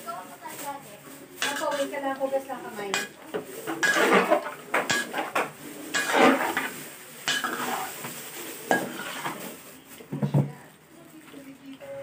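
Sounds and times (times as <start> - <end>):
metal spatula scraping wok: 1.4 - 9.6.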